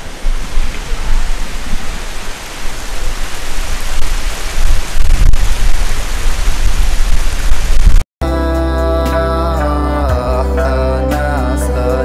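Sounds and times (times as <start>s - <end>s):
wind buffeting microphone: 0.0s - 8.0s.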